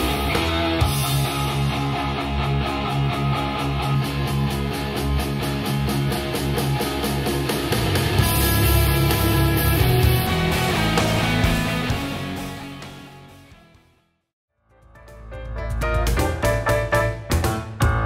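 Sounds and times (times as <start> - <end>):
rock music through speaker: 0.0 - 13.9.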